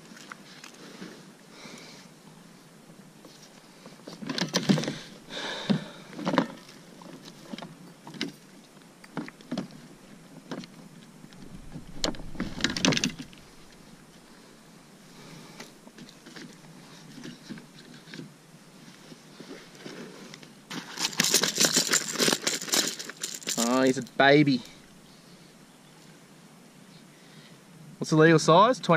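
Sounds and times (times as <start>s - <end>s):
rustling: 3.2s - 25.0s.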